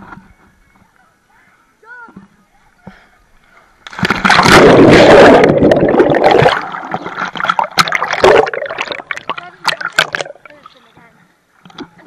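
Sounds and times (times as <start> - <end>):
pool water splashing: 3.4 - 10.9.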